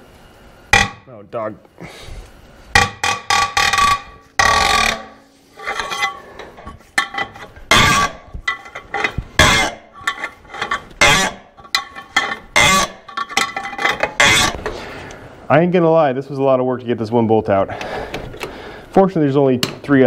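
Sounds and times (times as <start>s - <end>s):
steel clanking and clinking: 2.8s - 14.6s.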